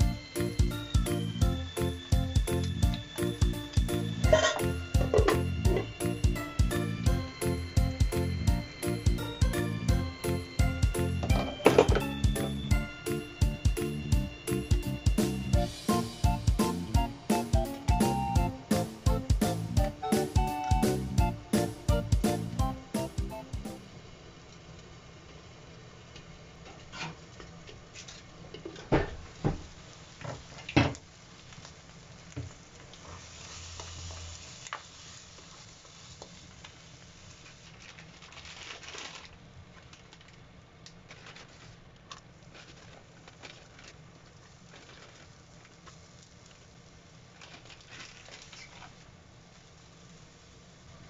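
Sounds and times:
egg and bacon sizzling: 0.0s - 23.9s, 26.5s - 40.3s, 41.0s - 51.0s
utensils knocking cookware: 11.2s - 12.1s.

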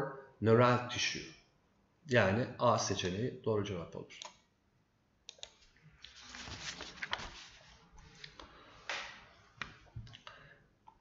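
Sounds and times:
computer mouse clicking: 5.3s - 5.7s.

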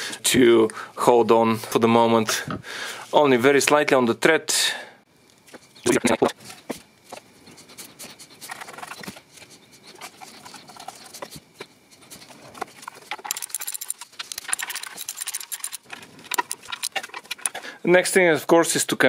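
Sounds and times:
metal bolts clicking and scraping: 12.6s - 17.6s.

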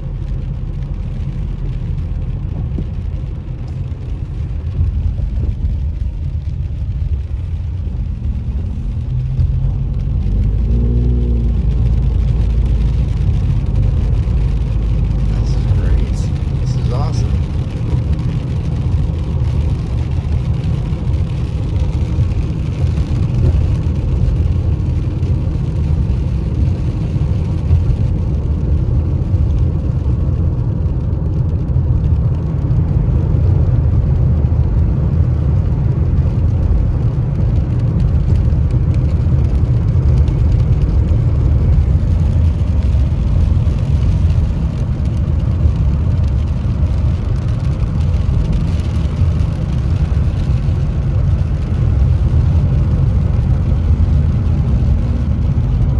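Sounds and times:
car engine and tyre noise: 0.0s - 55.9s.

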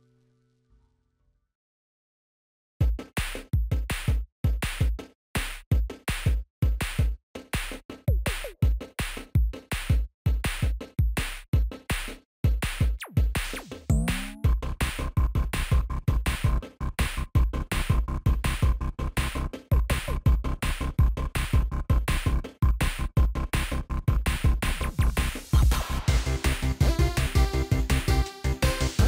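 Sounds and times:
electronic music with drum-machine beat: 2.8s - 29.0s.

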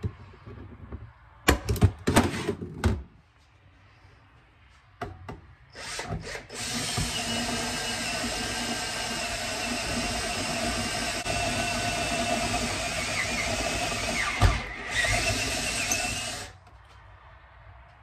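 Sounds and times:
power tool whining: 5.8s - 16.6s.

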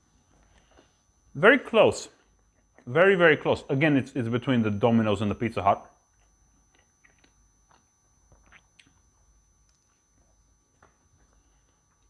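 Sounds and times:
faint chewing: 6.1s - 12.0s
mouth clicks and smacks: 6.2s - 9.0s.

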